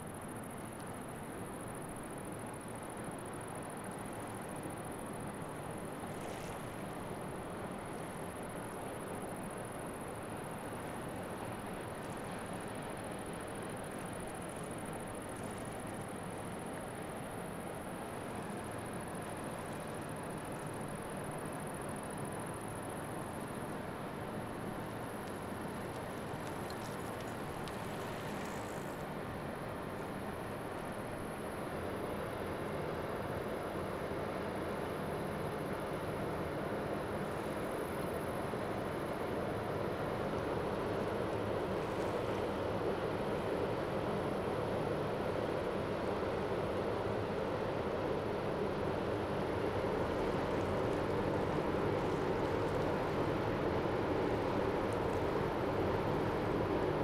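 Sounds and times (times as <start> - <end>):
ship engine drone: 38.2 - 57.0.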